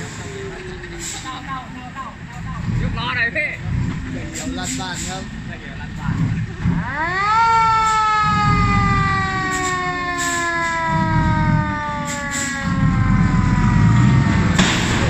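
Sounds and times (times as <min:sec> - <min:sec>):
truck engine running: 0:00.0 - 0:15.0
siren winding up and down: 0:06.8 - 0:14.6.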